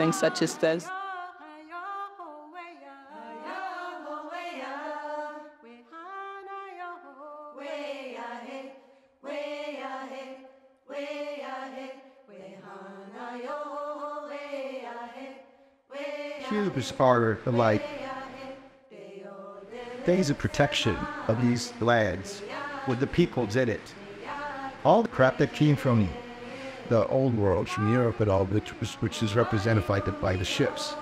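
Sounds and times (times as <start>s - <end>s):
voice chanting gliding phrases: 16.3s - 18.6s, 19.7s - 31.0s.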